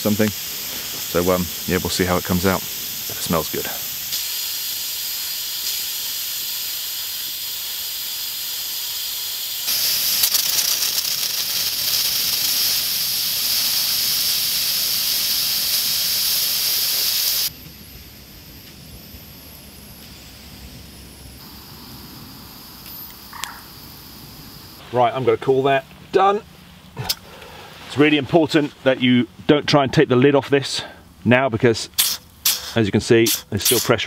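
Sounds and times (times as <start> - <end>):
steam hissing from pressure valve: 0.0 - 24.8, 32.0 - 34.0.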